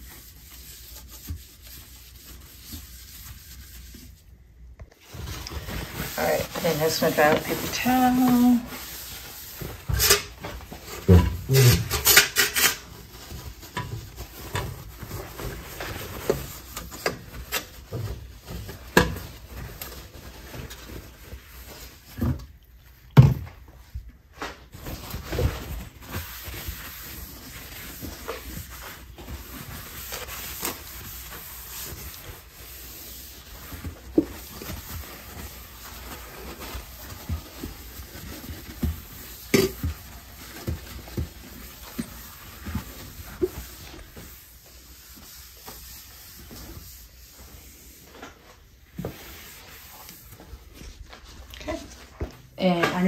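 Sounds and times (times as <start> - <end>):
paper towel wiping countertop: 0.0 - 53.0
items knocking and clattering: 9.7 - 16.5, 22.1 - 23.7, 38.5 - 41.4.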